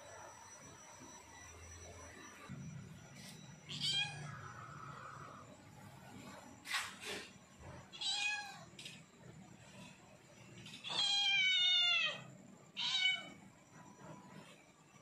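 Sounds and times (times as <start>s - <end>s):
cat meowing: 3.7s - 4.2s, 7.9s - 8.7s, 10.8s - 13.4s.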